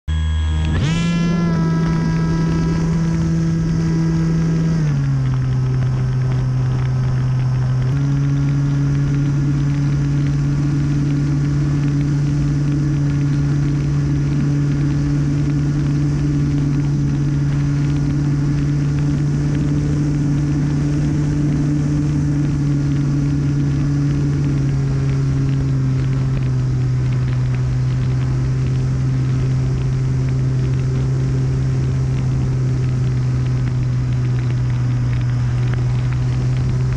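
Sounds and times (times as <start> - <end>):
electric motor and propeller whine: 0.1 - 36.9.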